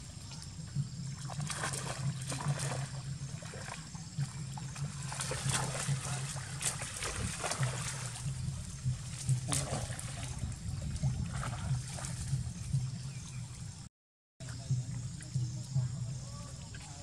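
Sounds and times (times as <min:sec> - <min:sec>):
low steady hum: 0:00.0 - 0:17.0
monkeys splashing in mud: 0:00.1 - 0:13.0.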